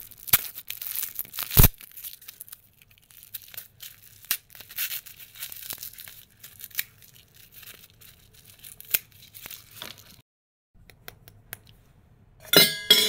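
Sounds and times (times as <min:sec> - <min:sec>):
plastic packaging crinkling and tearing: 0:00.0 - 0:10.2.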